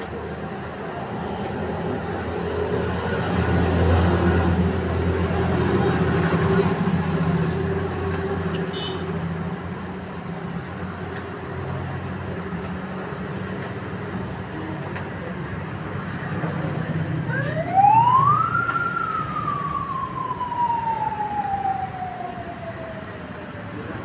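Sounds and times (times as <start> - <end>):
low engine-like hum: 13.6 - 24.0
siren wailing: 17.2 - 24.0.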